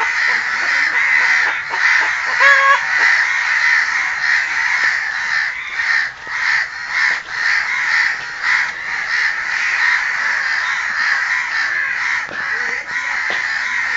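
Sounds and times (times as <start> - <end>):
crows cawing: 0.0 - 13.9.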